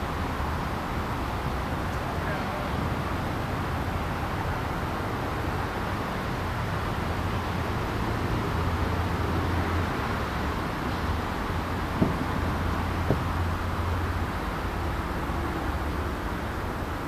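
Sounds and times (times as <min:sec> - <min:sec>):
outdoor rumble and hiss: 0:00.0 - 0:17.0
short thumps: 0:12.0 - 0:12.4, 0:13.0 - 0:13.4.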